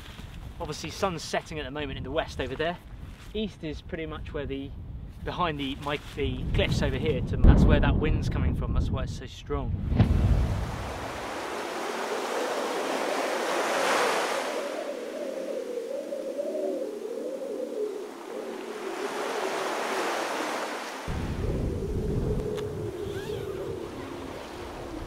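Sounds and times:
wind rumble on microphone: 0:00.0 - 0:13.3, 0:21.1 - 0:25.0
strong wind gusting: 0:06.2 - 0:25.0
sea surf: 0:10.0 - 0:25.0.

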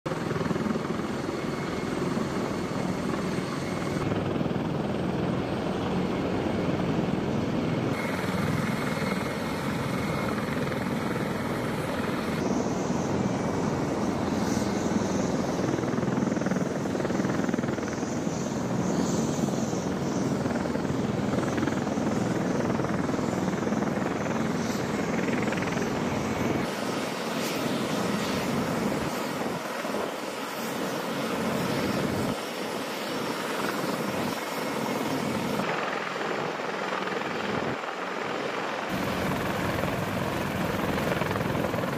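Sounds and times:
aircraft turbine engines and rotors: 0:00.0 - 0:41.9.

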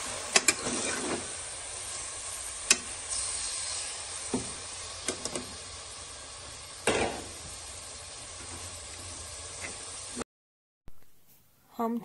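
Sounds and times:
chicken sizzling in hot oil: 0:00.0 - 0:10.2.

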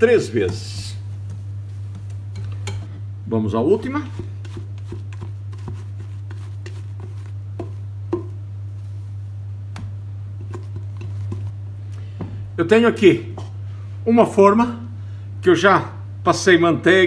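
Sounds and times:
steady low hum: 0:00.0 - 0:17.0
spatula tapping bowls: 0:00.3 - 0:03.0, 0:03.8 - 0:08.4, 0:09.7 - 0:11.6
spatula scraping a bowl: 0:03.8 - 0:07.8, 0:10.4 - 0:11.6.

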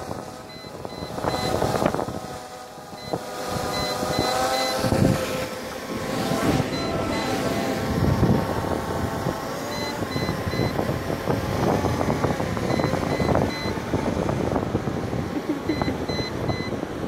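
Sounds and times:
wind buffeting microphone: 0:00.0 - 0:17.0
short electronic beeps: 0:00.5 - 0:01.6, 0:03.0 - 0:04.9, 0:06.6 - 0:07.6, 0:09.7 - 0:10.8, 0:12.6 - 0:13.8, 0:15.6 - 0:16.8.

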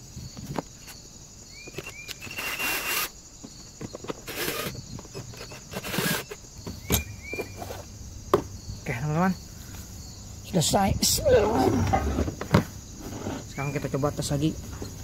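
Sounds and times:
cordless drill driving screws: 0:02.2 - 0:03.1, 0:04.3 - 0:06.4.

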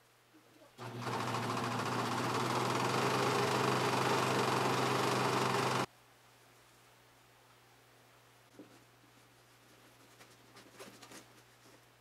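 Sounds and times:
overlocker sewing machine running: 0:00.8 - 0:05.9.

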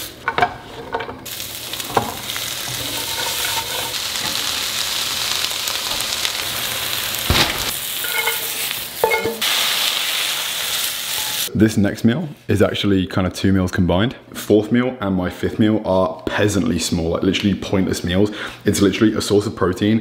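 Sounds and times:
food sizzling in frying pans: 0:01.2 - 0:11.5.

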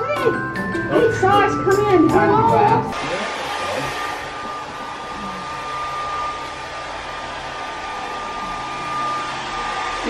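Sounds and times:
hair dryer running: 0:00.8 - 0:10.0.

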